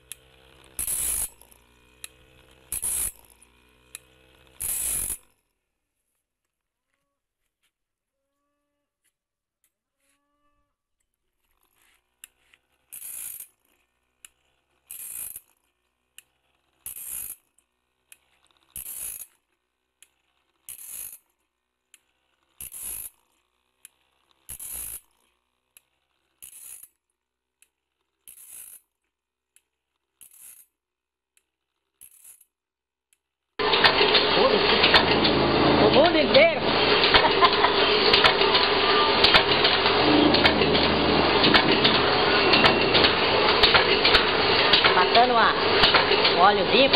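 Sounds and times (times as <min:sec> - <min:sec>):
grinding wheel hissing on teeth: 0:00.0 - 0:05.5, 0:11.4 - 0:27.0, 0:27.6 - 0:28.8, 0:30.2 - 0:30.7, 0:33.6 - 0:46.9
feed mechanism click: 0:33.6 - 0:46.9.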